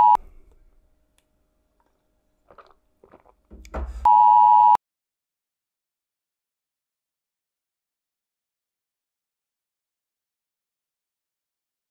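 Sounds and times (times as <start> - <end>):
electronic bleep tone: 0.0 - 0.2
man drinking water: 1.8 - 4.1.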